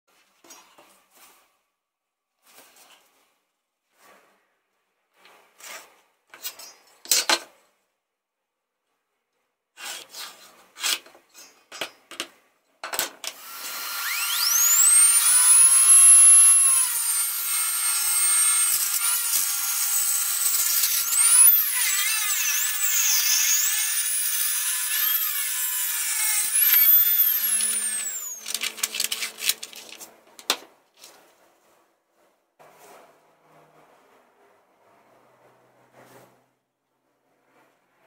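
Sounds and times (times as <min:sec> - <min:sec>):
table saw whining: 0:13.3 - 0:29.9.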